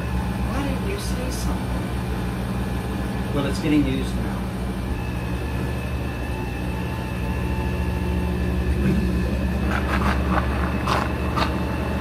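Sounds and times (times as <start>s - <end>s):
blender motor whirring: 4.9s - 12.0s.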